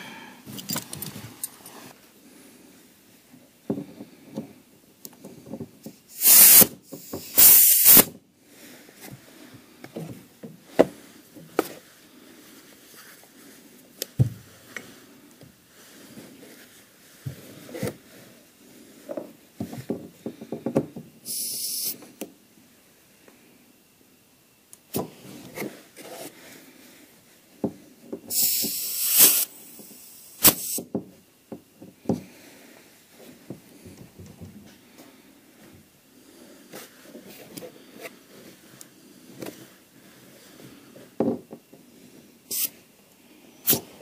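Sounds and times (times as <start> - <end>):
tools and metal parts clanking: 0.5 - 1.7
compressed air hissing: 6.1 - 8.1, 21.2 - 22.1, 28.3 - 30.8, 42.5 - 42.8, 43.5 - 44.0.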